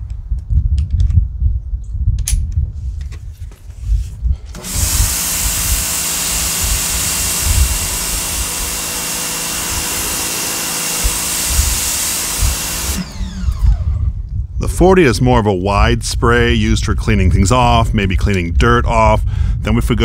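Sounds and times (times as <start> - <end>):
pressure washer motor whine: 4.5 - 14.3
spray hissing on concrete: 4.8 - 13.0
low rumble: 9.6 - 14.9.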